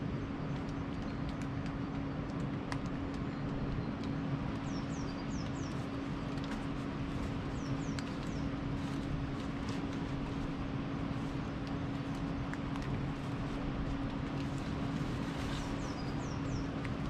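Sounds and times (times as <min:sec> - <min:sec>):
small bird calling: 0:15.0 - 0:16.8.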